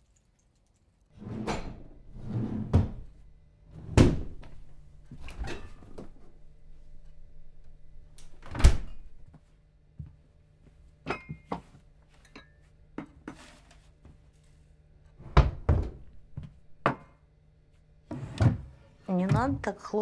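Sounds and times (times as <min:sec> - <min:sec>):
cabinet doors banging shut: 0:03.8 - 0:04.4, 0:15.2 - 0:16.1.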